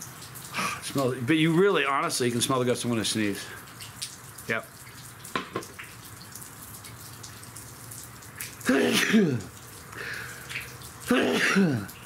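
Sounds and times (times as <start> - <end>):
man stifled sneezes: 8.6 - 9.5, 11.1 - 12.0.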